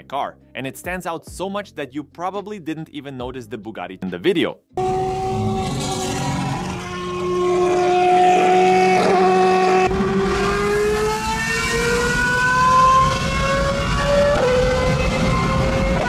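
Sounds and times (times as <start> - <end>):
race car engine accelerating: 4.8 - 16.0.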